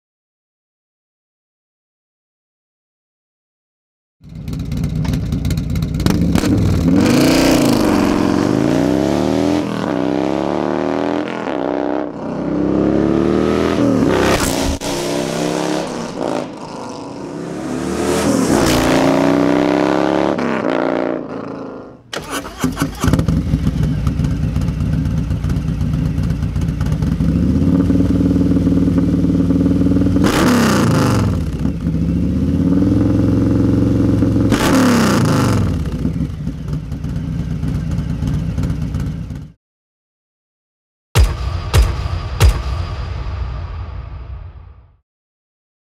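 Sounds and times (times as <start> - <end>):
motorcycle idling and revving: 4.2 - 14.4, 15.4 - 39.6
motorcycle accelerating through gears: 4.2 - 39.6.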